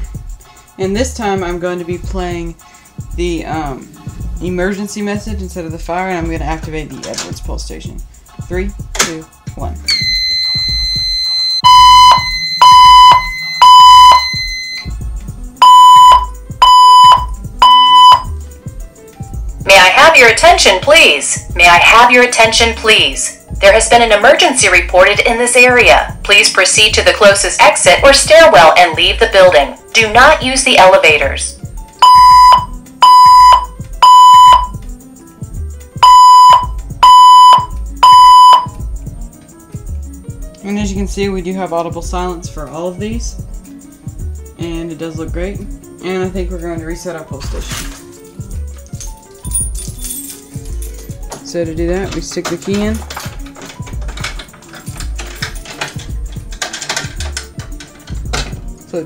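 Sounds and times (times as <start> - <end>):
high-pitched electronic tone: 9.9 - 14.8
fire alarm evacuation tones: 9.9 - 15.0, 15.6 - 18.4, 26.3 - 34.8, 36.0 - 38.8.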